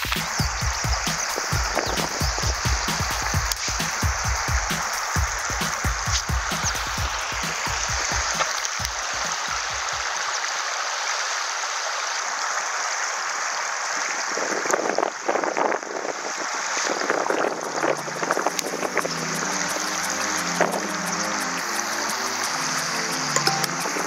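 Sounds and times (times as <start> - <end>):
background music: 0.0 - 10.0, 17.8 - 24.0
river water rushing and splashing: 0.0 - 24.0.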